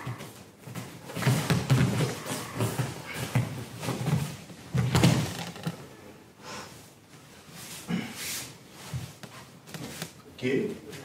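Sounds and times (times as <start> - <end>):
bodies thudding on mats: 0.0 - 5.5.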